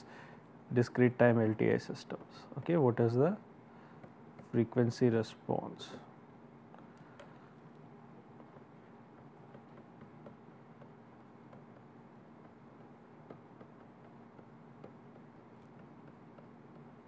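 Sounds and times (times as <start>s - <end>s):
faint steady hum: 0.0s - 17.0s
stylus tapping on tablet screen: 6.7s - 17.0s.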